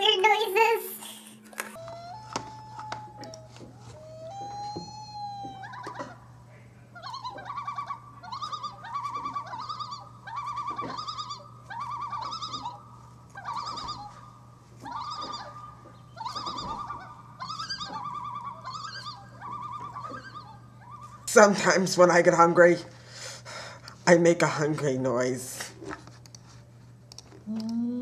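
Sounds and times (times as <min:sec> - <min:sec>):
steady low hum: 0:00.0 - 0:28.0
person making warbling animal noises: 0:27.4 - 0:28.0.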